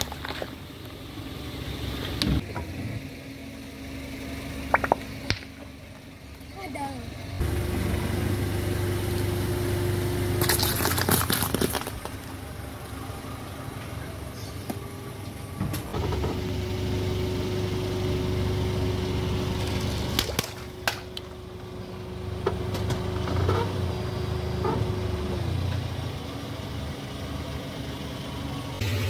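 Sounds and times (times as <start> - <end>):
objects cracking under tyre: 0.0 - 1.0, 10.4 - 12.5, 19.6 - 21.3
car engine running: 0.0 - 29.0
sharp pops under tyre: 4.7 - 5.6.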